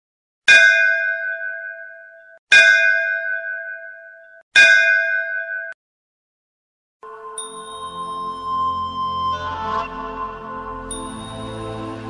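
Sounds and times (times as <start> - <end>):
bell struck: 7.0 - 8.8, 10.9 - 12.0.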